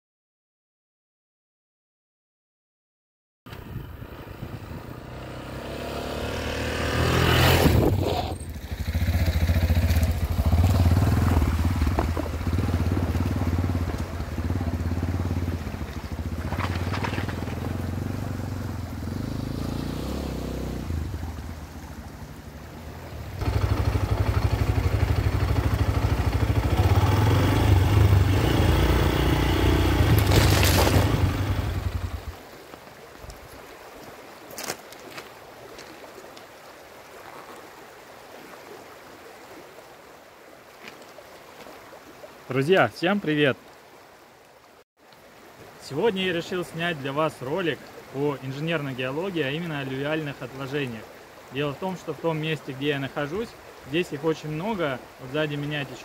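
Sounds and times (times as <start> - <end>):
vehicle engine and road rumble: 3.5 - 32.6.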